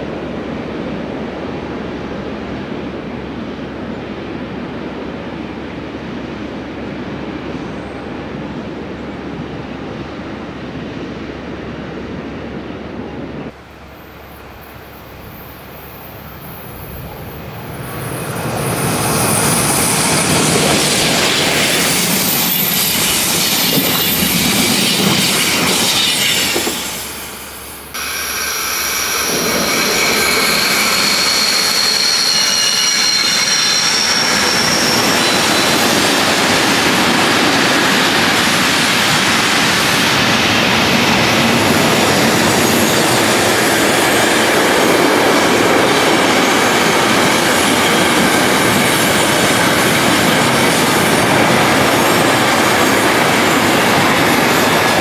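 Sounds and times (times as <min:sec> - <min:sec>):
electric passenger train passing: 0:00.0 - 0:55.0
freight train wagons rumbling: 0:00.0 - 0:55.0
train wheels squealing: 0:13.8 - 0:55.0.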